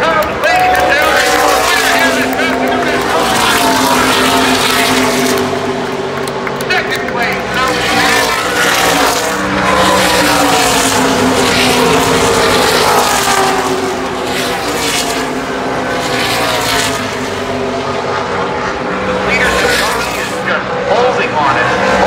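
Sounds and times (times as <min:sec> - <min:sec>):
race cars passing at full throttle: 0:00.0 - 0:22.0.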